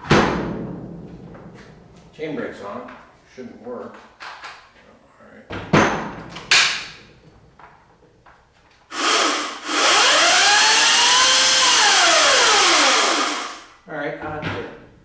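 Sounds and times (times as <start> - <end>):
battery chainsaw motor whine: 8.9 - 13.7.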